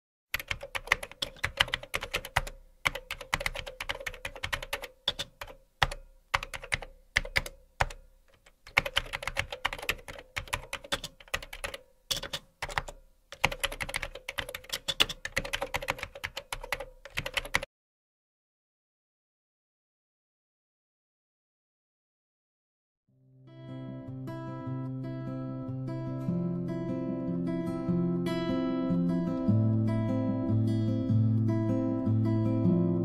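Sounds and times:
keyboard keystroke clicks: 0:00.4 - 0:17.7.

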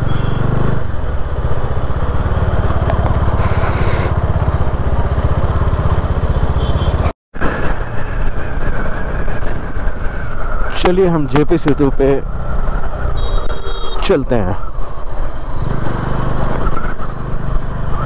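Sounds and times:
motorcycle engine running: 0:00.0 - 0:07.1
road noise: 0:00.0 - 0:18.0.

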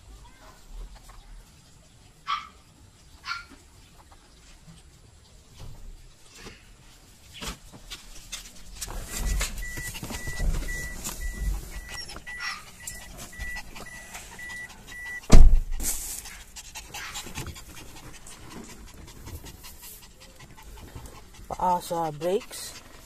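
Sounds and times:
dog panting: 0:08.2 - 0:23.0
car warning chime beeping: 0:09.1 - 0:15.4
loud thump: 0:15.2 - 0:16.0.

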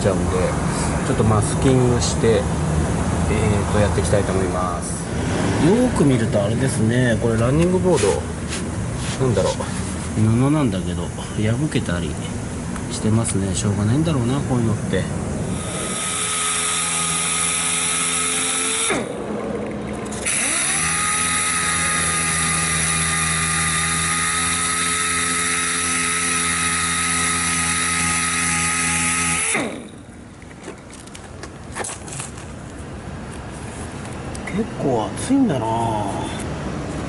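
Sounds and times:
air sander whine: 0:15.4 - 0:19.3, 0:20.2 - 0:30.2.

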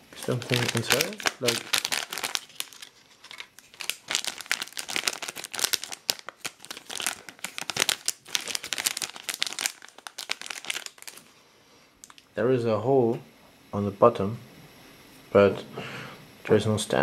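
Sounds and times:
foil wrapper crinkling and tearing: 0:00.0 - 0:11.3.

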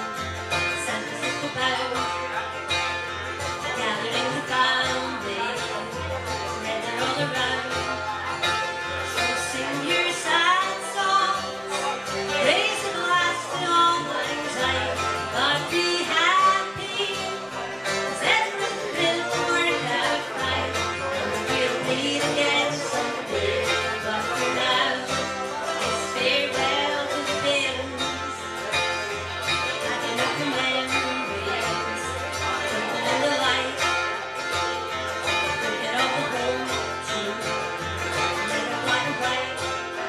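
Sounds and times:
woman singing: 0:00.0 - 0:34.5, 0:35.2 - 0:40.0
banjo picking: 0:00.0 - 0:40.0.

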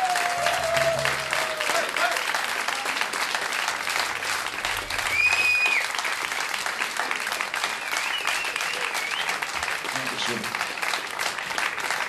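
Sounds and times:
audience applauding: 0:00.0 - 0:12.0
loud whistles from crowd: 0:05.0 - 0:06.0, 0:07.7 - 0:09.4.

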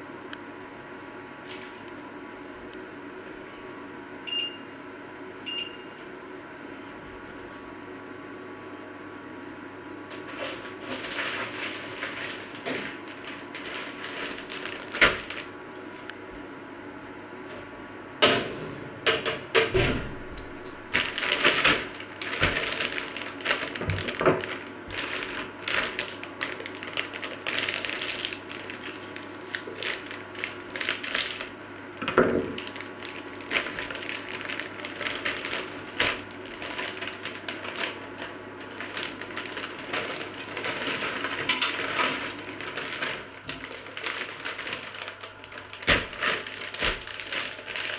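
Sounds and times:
plastic bag crinkling: 0:10.3 - 0:15.5, 0:20.9 - 0:47.9.

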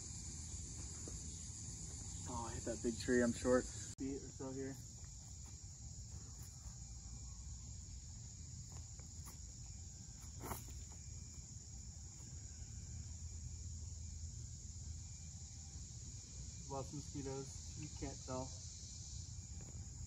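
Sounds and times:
high-pitched insect chorus: 0:00.0 - 0:20.0.

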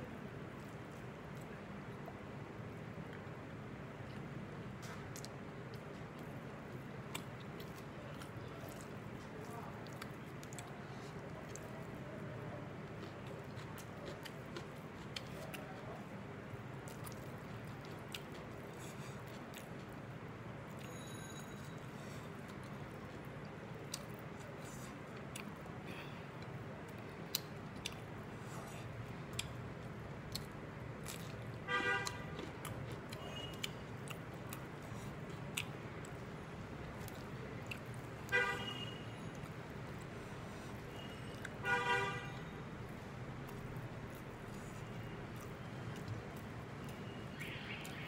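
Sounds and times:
low background noise: 0:00.0 - 0:48.0
chewing: 0:04.0 - 0:12.1, 0:12.8 - 0:16.1, 0:16.8 - 0:20.0, 0:21.6 - 0:38.1, 0:43.4 - 0:48.0.

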